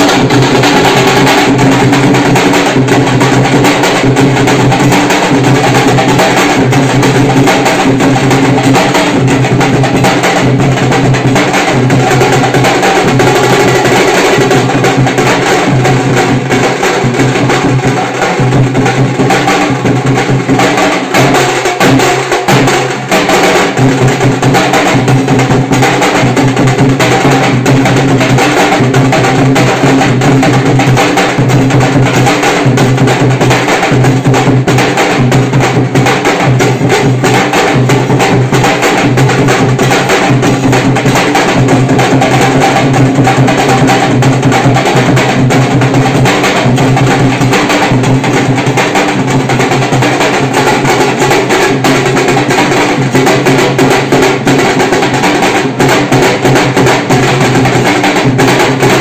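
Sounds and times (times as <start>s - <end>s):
drum band playing fast beat: 0.0s - 59.0s.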